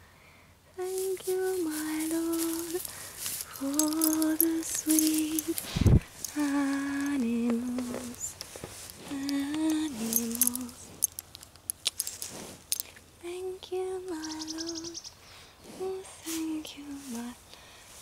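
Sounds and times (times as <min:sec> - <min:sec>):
woman humming: 0:00.8 - 0:08.3, 0:09.0 - 0:10.8, 0:15.8 - 0:17.4.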